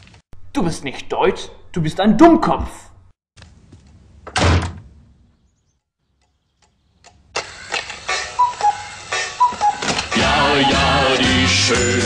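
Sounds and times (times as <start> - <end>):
door slamming shut: 4.3 - 4.9
cuckoo clock calling: 8.1 - 11.2
music: 8.1 - 12.0.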